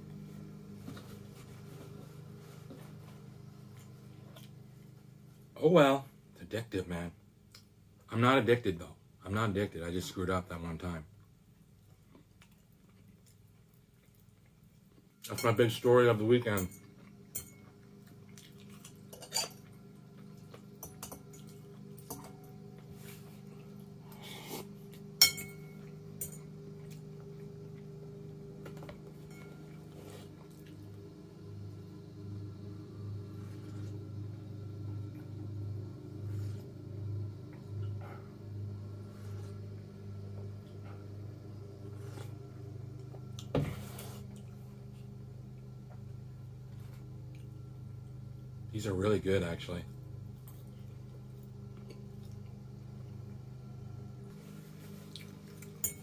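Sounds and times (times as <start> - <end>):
steady low hum: 0.0 - 56.0
tableware clicks and clinks: 19.2 - 19.6.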